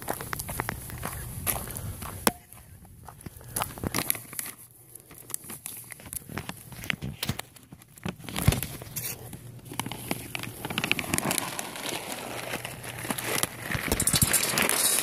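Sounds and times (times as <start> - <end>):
plastic bag crinkling: 4.0 - 15.0.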